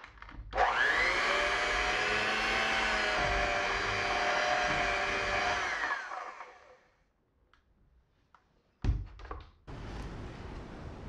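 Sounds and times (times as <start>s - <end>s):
electric hand mixer running: 0.6s - 6.8s.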